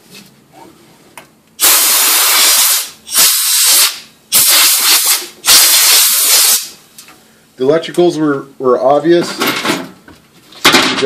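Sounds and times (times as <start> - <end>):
compressed air blow gun hissing: 1.6 - 6.8.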